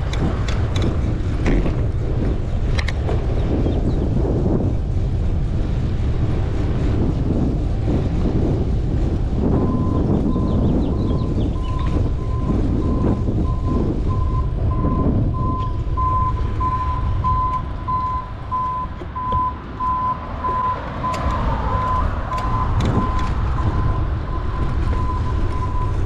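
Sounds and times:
wind and road noise: 0:00.0 - 0:26.0
reversing alarm beeping: 0:09.6 - 0:26.0.

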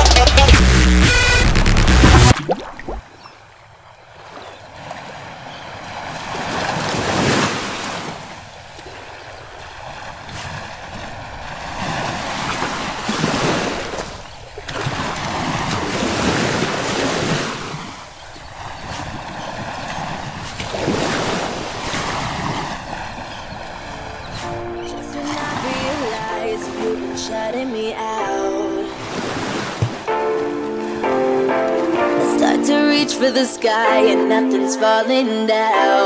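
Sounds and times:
sea waves breaking on rocks: 0:04.2 - 0:27.7, 0:29.0 - 0:30.1.

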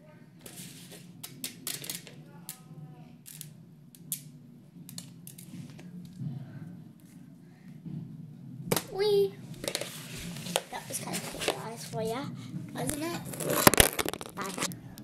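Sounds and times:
toy putty crackling and snapping: 0:12.8 - 0:15.0.

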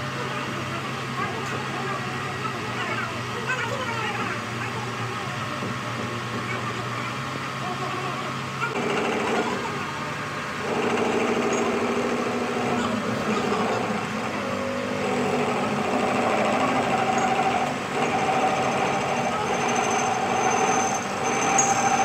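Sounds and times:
workshop machine motor running: 0:00.0 - 0:22.0.

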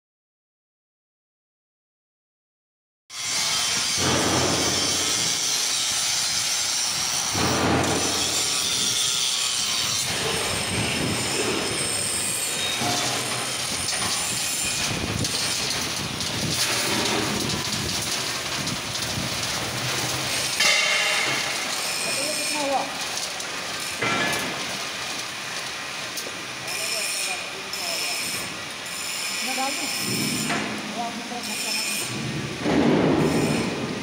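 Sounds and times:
concrete mixer grinding and rattling: 0:03.1 - 0:34.0
high-pitched metallic squeals: 0:03.2 - 0:32.3, 0:33.2 - 0:34.0.

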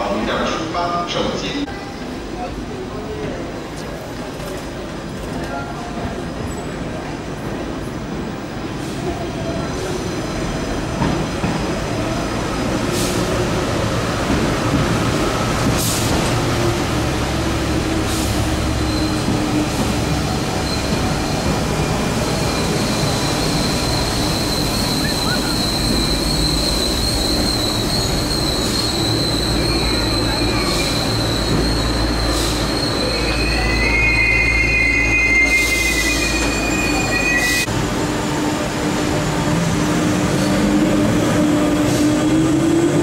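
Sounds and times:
train rumble: 0:00.0 - 0:34.2
brake and wheel squeal: 0:22.5 - 0:37.7.

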